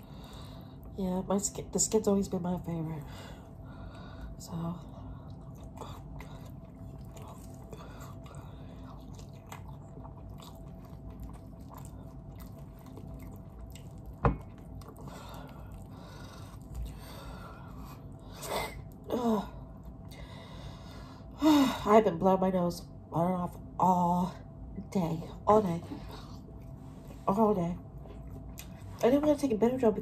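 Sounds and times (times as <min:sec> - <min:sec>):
chewing with mouth clicks: 0:05.1 - 0:18.2, 0:27.9 - 0:29.0.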